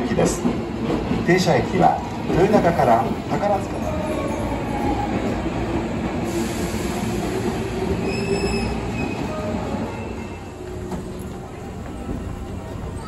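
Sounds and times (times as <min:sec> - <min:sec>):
train wheels rumbling: 0:00.0 - 0:13.0
high wheel squeal: 0:08.0 - 0:10.5.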